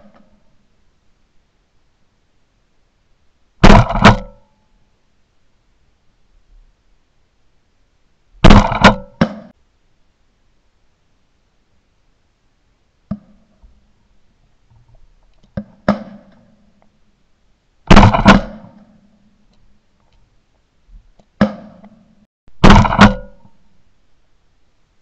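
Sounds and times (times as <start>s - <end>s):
shotgun shots with echo: 3.6s - 4.4s, 8.4s - 9.5s, 17.9s - 18.8s, 22.6s - 23.4s.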